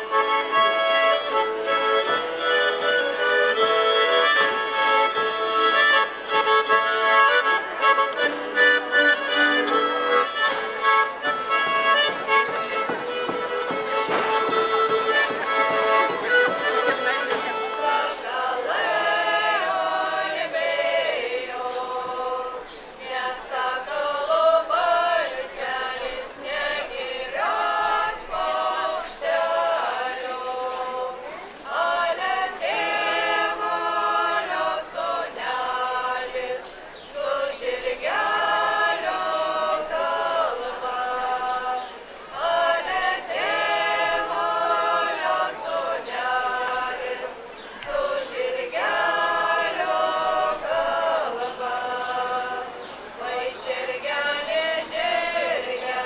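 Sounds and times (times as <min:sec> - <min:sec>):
women singing unaccompanied: 0:13.7 - 0:56.0.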